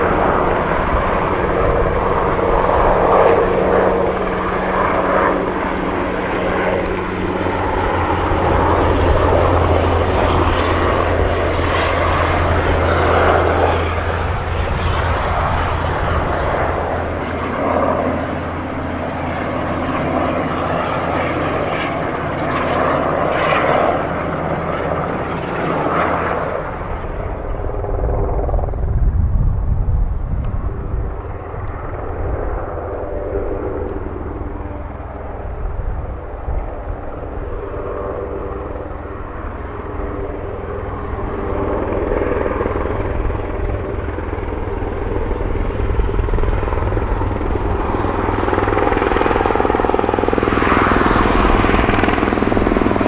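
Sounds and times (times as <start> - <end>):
helicopter rotor and turbine: 0.0 - 53.0
low rumble: 50.2 - 53.0.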